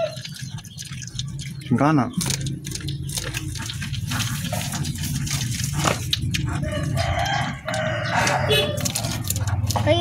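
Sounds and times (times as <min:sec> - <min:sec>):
porcupine chewing corn: 0:00.0 - 0:10.0.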